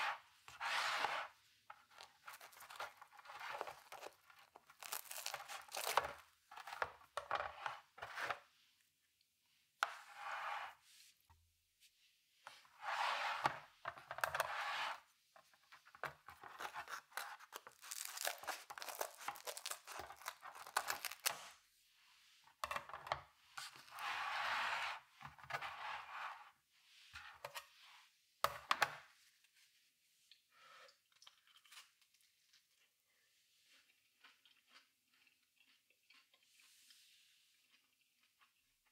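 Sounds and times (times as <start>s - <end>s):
scissors cutting pizza crust: 16.4s - 21.5s.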